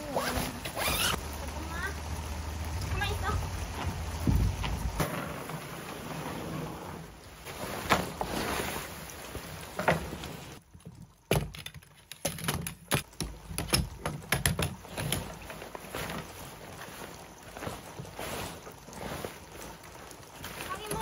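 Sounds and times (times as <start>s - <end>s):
tent fabric rustling: 0.0s - 1.9s, 4.7s - 10.6s, 14.8s - 21.0s
tent poles clicking together: 9.8s - 16.3s.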